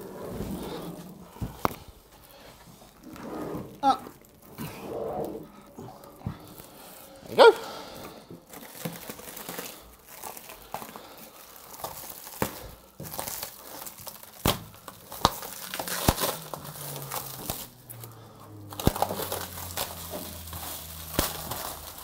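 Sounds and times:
plastic wrap crinkling: 0.0 - 22.0
plastic wrap snapping: 1.4 - 2.0, 8.4 - 22.0.

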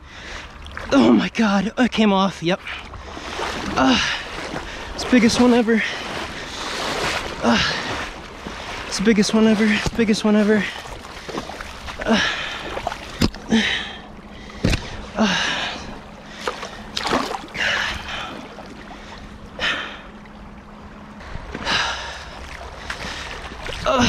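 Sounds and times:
water sloshing around wading legs: 0.0 - 24.0
person breathing heavily and sighing: 12.0 - 12.7, 13.3 - 16.9.

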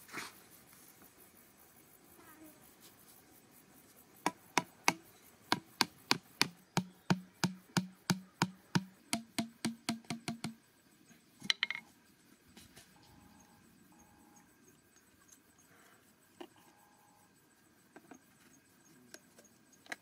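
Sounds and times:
hatchet striking plastic pipe: 4.2 - 10.6.

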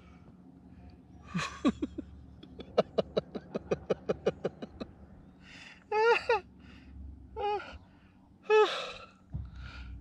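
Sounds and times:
rapid breathing huffs: 7.7 - 10.0.

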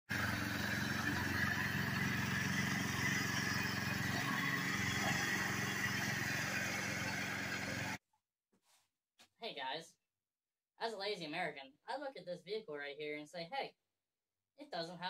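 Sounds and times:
small engine running steadily: 0.1 - 8.0.

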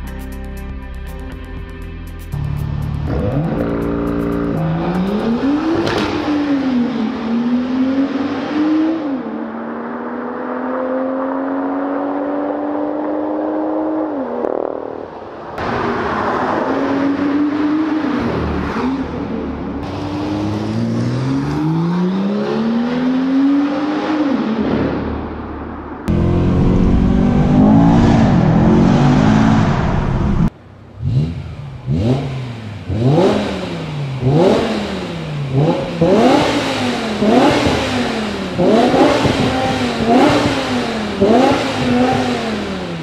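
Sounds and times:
car exhaust under hard acceleration: 24.9 - 43.0.

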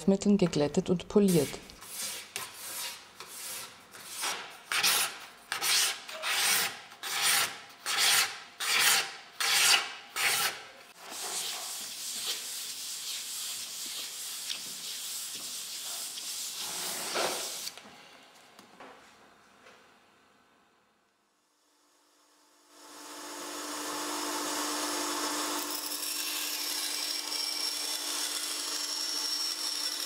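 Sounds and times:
hand sanding rubbing: 1.3 - 17.7.

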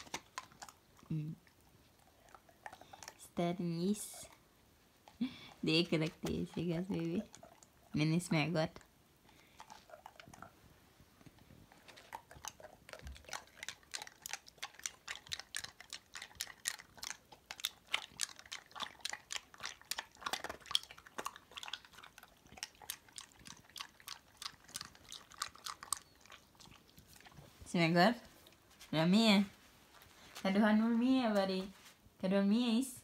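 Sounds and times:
dog crunching ice cubes: 0.0 - 1.0, 11.7 - 27.1.

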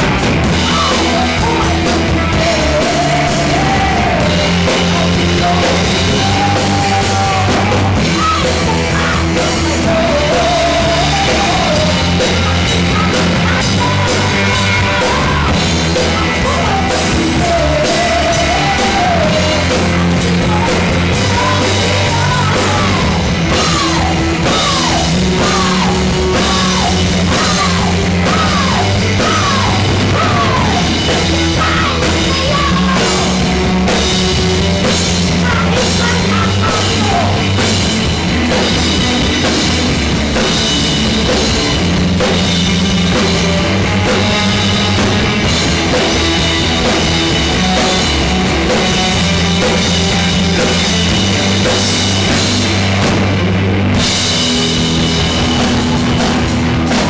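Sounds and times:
drum kit: 0.0 - 57.0
electric guitars: 0.0 - 57.0
woman singing: 0.6 - 34.0, 35.3 - 37.5.

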